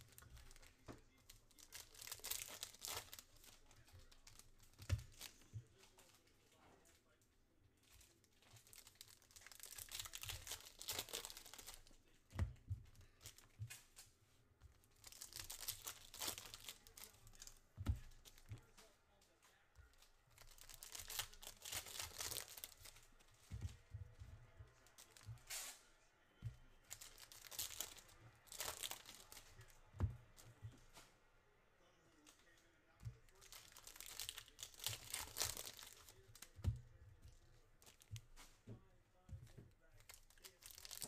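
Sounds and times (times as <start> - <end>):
wrappers tearing and crinkling: 0.0 - 6.3, 7.8 - 12.2, 14.8 - 18.8, 19.8 - 25.8, 26.7 - 30.6, 33.2 - 38.6, 39.8 - 41.0.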